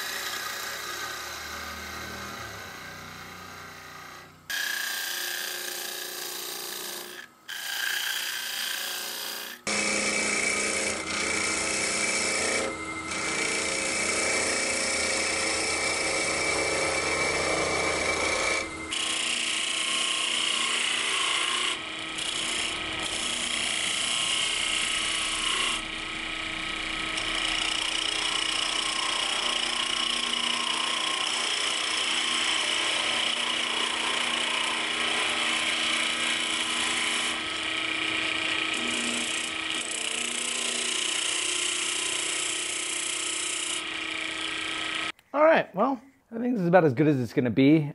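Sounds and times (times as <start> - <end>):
gouge scraping spinning wood: 0.0 - 45.1
lathe motor hum: 0.0 - 45.1.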